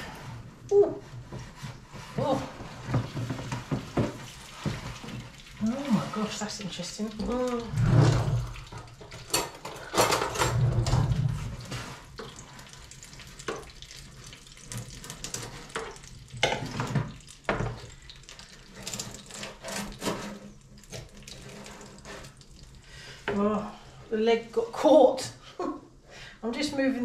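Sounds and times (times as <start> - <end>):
hot juices sizzling: 2.5 - 23.3.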